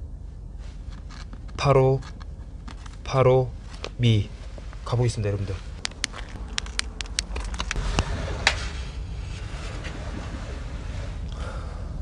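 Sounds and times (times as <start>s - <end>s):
footsteps and camera handling knocks: 5.8s - 7.8s
low rumble on microphone: 7.6s - 12.0s.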